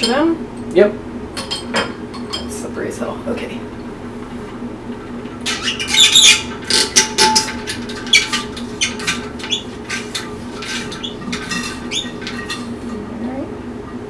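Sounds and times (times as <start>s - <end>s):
siphon plunger pumping in jug: 5.4s - 12.9s.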